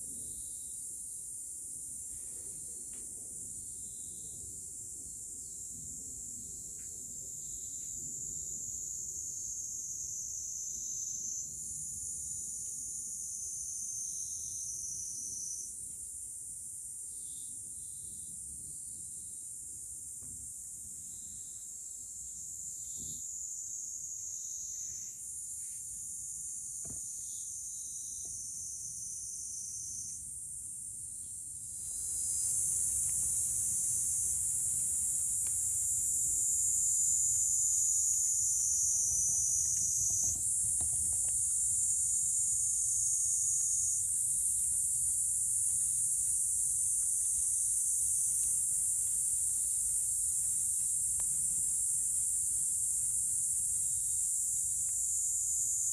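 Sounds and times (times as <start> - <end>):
insects singing: 31.8 - 55.9.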